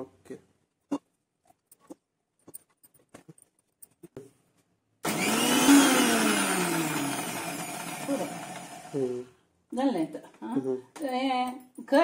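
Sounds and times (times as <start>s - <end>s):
mixer grinder whining: 5.0s - 9.2s.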